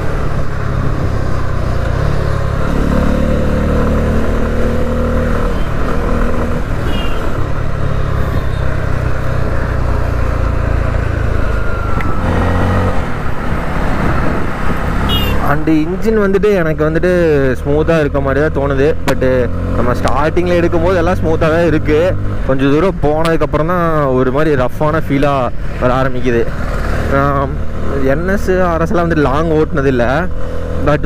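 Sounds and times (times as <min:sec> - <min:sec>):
motorcycle engine running: 0:00.0 - 0:11.6
wind noise: 0:11.5 - 0:15.3.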